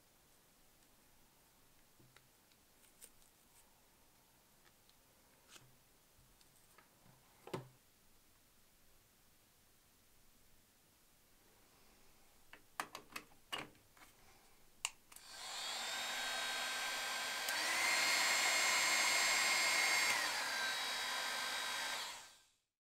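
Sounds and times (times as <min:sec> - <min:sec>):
hot air styler blowing: 0:15.2 - 0:22.6.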